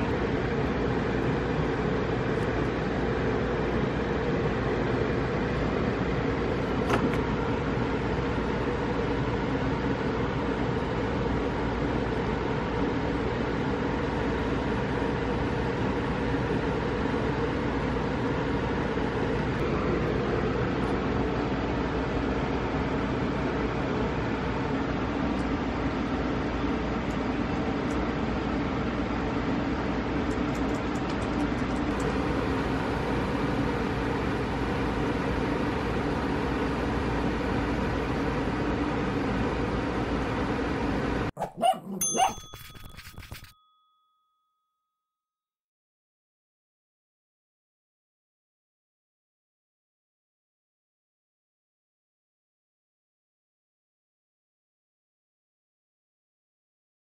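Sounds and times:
machine droning hum with rushing: 0.0 - 41.3
short dog barks: 41.4 - 42.4
ringing chime: 41.9 - 45.2.

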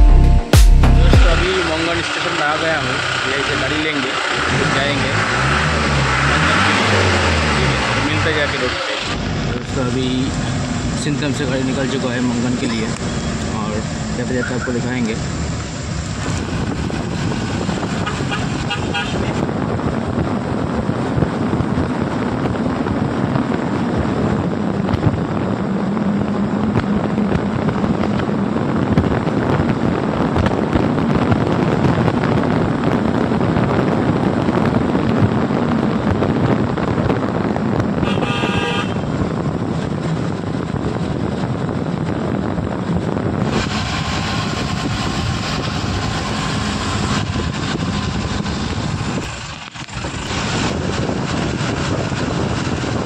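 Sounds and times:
car engine and road noise: 0.0 - 53.0
wind on microphone: 9.1 - 53.0
vehicle horn: 18.0 - 19.4, 38.0 - 39.2.

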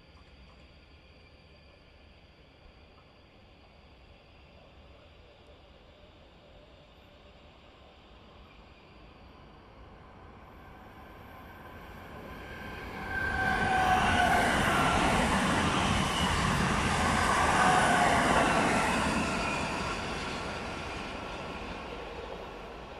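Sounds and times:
train passing with whine: 5.8 - 22.9.

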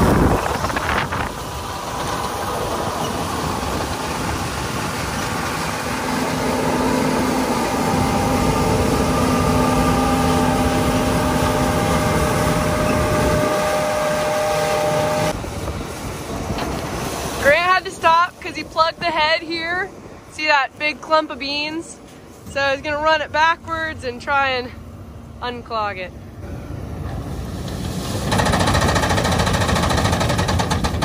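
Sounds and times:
combine harvester machinery drone: 0.0 - 31.0.

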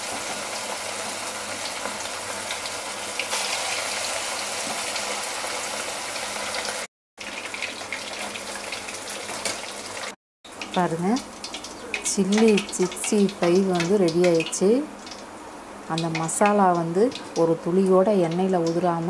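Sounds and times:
food deep-frying in hot oil: 0.0 - 19.0.

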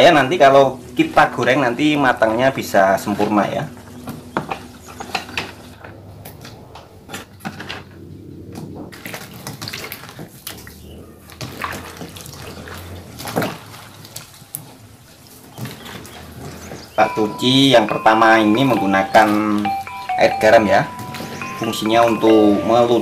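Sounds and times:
water splashing and sloshing in bowl: 8.7 - 17.0.

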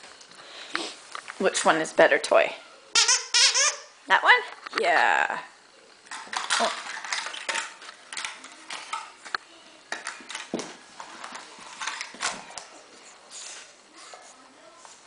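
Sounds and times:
dog claws clicking on wood floor: 6.1 - 10.8.

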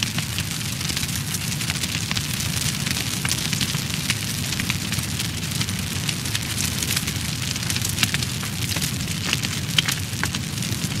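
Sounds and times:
fire crackling: 0.0 - 11.0.

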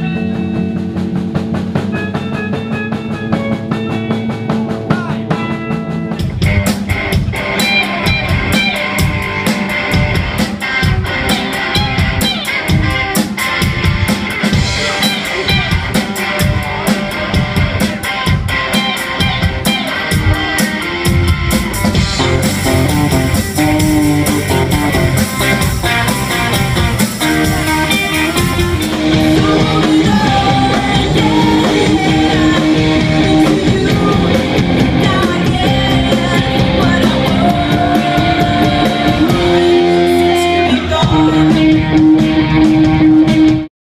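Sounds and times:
bass guitar: 0.0 - 43.7
drum kit: 0.0 - 43.7
electric guitars: 0.0 - 43.7
woman singing: 29.2 - 41.8.

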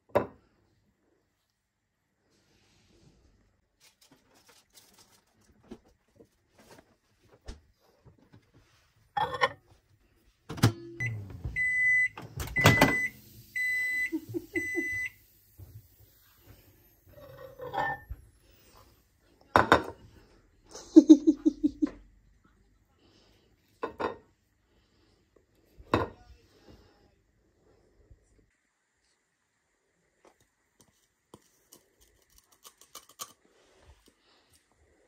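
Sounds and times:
microwave beeping: 10.5 - 15.9.

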